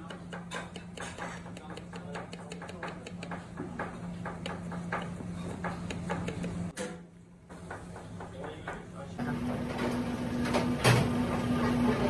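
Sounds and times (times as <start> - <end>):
knife chopping on plastic board: 0.0 - 6.7.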